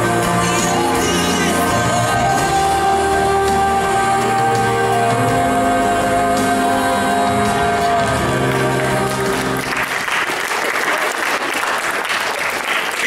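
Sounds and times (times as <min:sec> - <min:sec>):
music with long held chords: 0:00.0 - 0:10.6
audience applause: 0:08.0 - 0:13.0.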